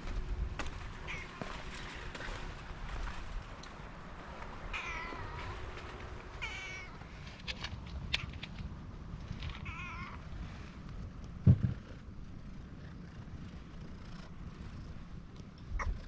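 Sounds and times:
cat meowing: 4.7 - 5.6, 6.4 - 7.0, 9.6 - 10.2.

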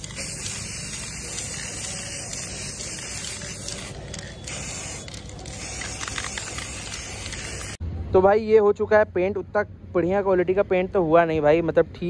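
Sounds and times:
aerosol spray can hissing: 0.0 - 7.8.

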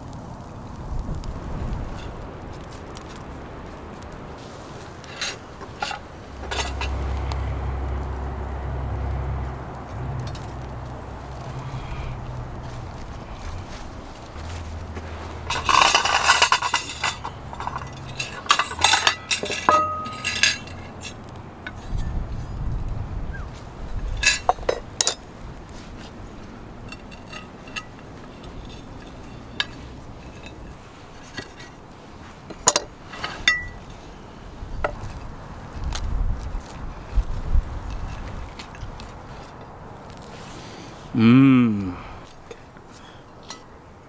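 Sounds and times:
plates and forks clattering: 15.4 - 21.2.

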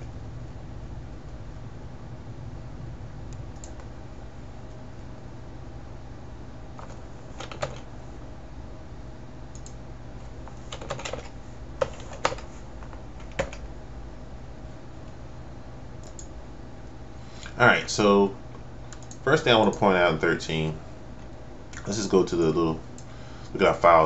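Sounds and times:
low hum: 0.0 - 24.0
keyboard keystrokes: 6.8 - 7.8, 10.7 - 12.5, 13.2 - 13.6.

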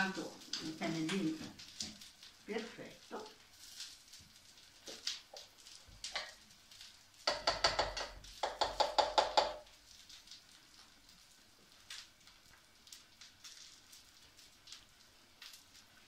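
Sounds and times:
glass bowl knocking on sink: 7.3 - 9.6.

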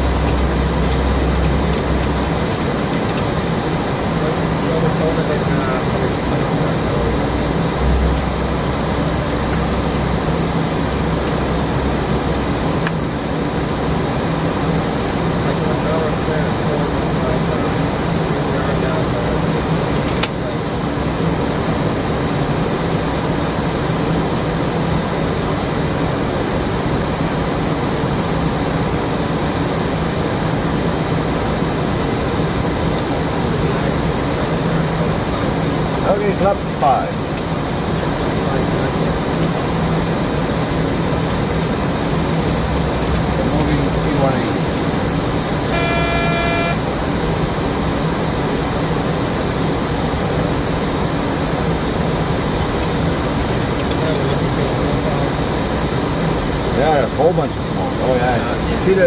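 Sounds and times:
rushing flight deck noise: 0.0 - 22.7, 32.6 - 48.4
airflow and engine noise: 0.0 - 59.0
constant low hum: 0.0 - 59.0
electronic alert tone: 45.7 - 46.8.

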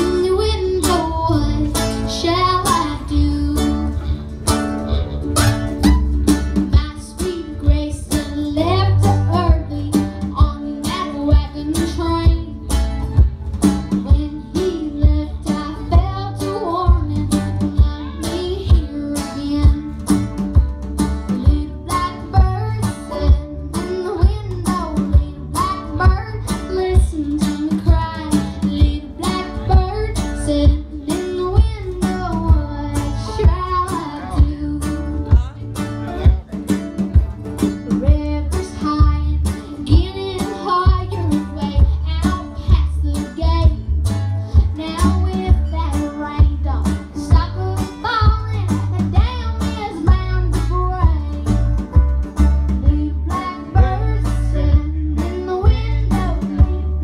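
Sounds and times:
girl singing: 0.0 - 4.2, 6.6 - 12.8, 13.8 - 20.6, 21.3 - 35.6, 37.8 - 51.8, 52.7 - 57.0
live band music: 0.0 - 57.0.

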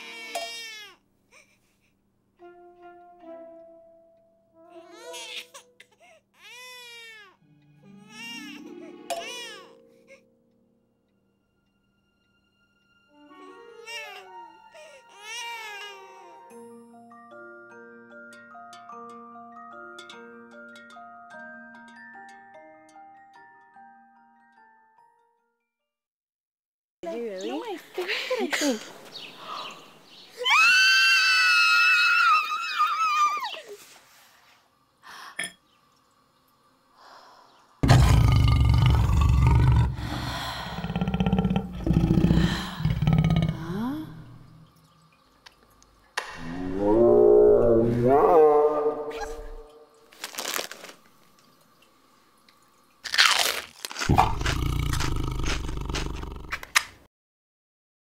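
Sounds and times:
woman screaming: 30.4 - 33.6
whoosh falling in pitch: 46.4 - 49.8.

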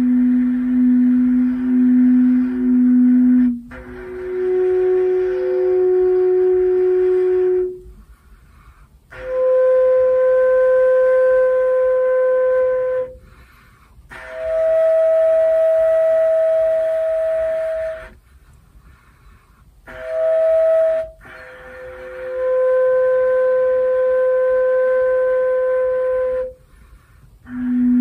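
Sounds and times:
didgeridoo flute-like held notes: 0.0 - 18.6, 19.8 - 28.0.

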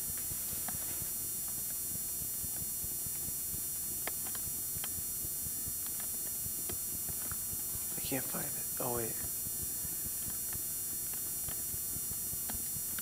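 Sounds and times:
steady hiss: 4.1 - 13.0.

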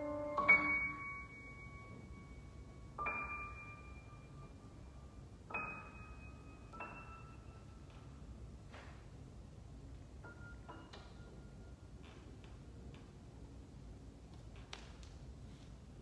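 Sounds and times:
piano high notes: 0.0 - 4.8.

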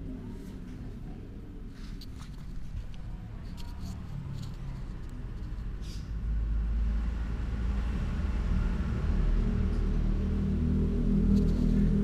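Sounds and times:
low steady rumble: 6.2 - 12.0.

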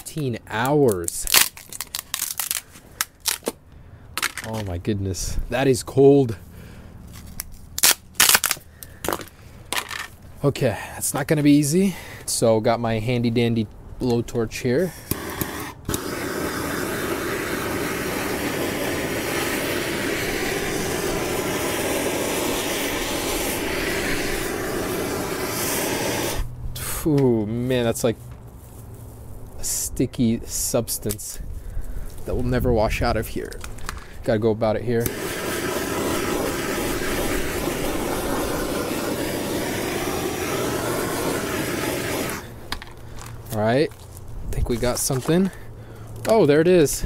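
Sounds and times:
blowtorch hissing: 14.9 - 27.0, 35.0 - 42.7.

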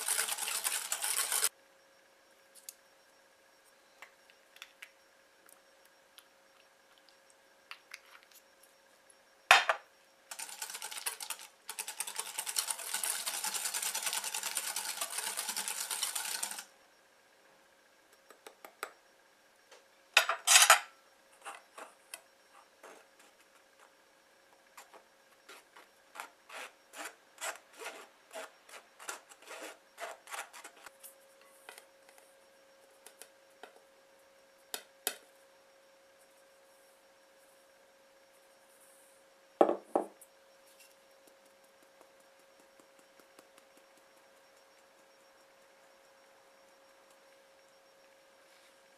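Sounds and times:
whisk scraping in glass bowl: 0.0 - 1.5.

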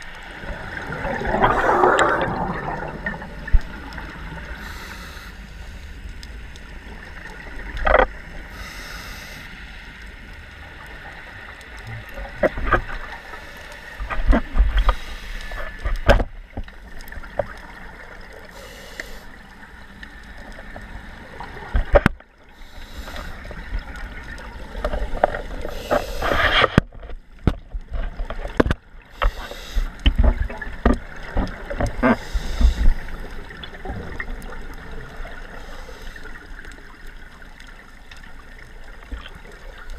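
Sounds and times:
exhaled bubbles underwater: 0.0 - 4.8
diver inhaling through regulator: 4.6 - 5.9, 8.5 - 9.6, 14.8 - 15.8, 18.5 - 19.3, 22.6 - 23.4, 25.6 - 26.6, 29.1 - 30.0, 32.1 - 33.2
sharp clicks and knocks: 26.3 - 29.4.

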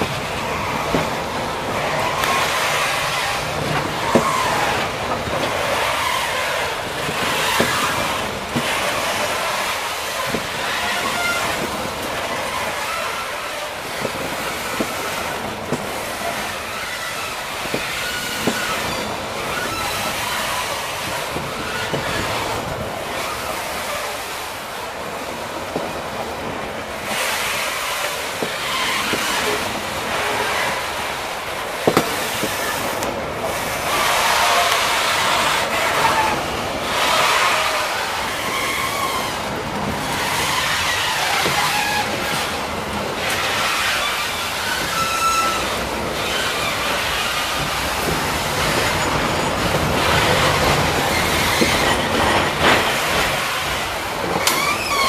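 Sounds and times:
wheel clicks over rail joints: 0.0 - 24.1, 25.6 - 55.0
freight wagons rattling and rumbling: 0.0 - 55.0
faint wheel squeal: 5.5 - 13.8, 16.0 - 24.2, 43.3 - 53.2, 54.4 - 55.0.

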